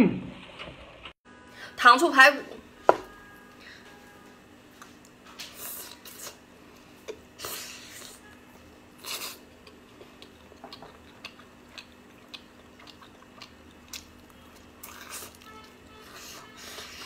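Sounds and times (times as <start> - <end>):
chewing and sucking: 9.0 - 17.0.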